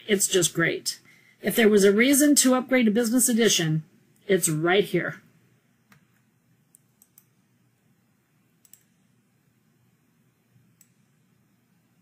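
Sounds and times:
faint computer mouse clicks: 5.9s - 7.3s, 8.6s - 9.0s, 10.8s - 11.0s.

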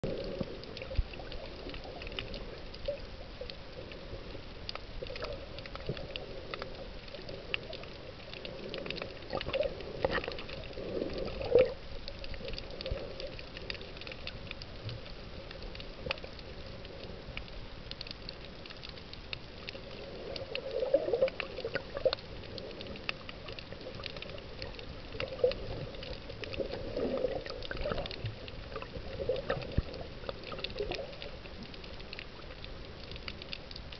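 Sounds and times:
water surging: 0.0s - 33.9s
underwater current hiss: 5.1s - 14.4s.

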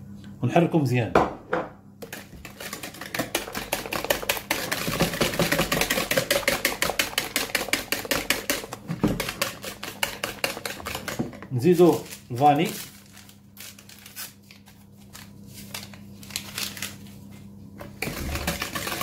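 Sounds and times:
whisk clicking against plastic bowl: 2.0s - 11.5s, 18.0s - 19.0s.

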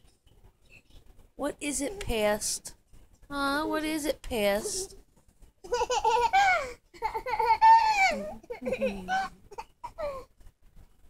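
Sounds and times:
baby laughing and squealing: 5.7s - 10.3s.

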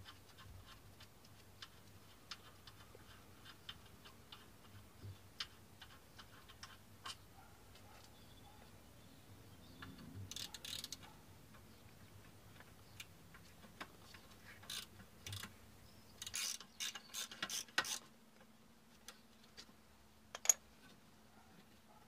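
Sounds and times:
hand ratchet clicking: 16.2s - 18.0s.

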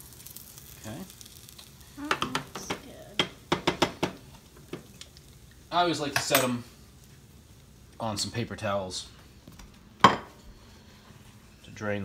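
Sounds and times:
oil sizzling faintly in a pan: 0.0s - 12.0s.

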